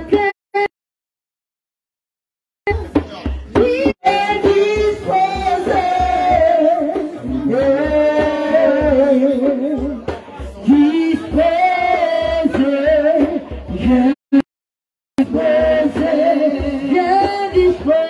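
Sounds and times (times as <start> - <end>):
congregation singing: 15.2 - 18.0.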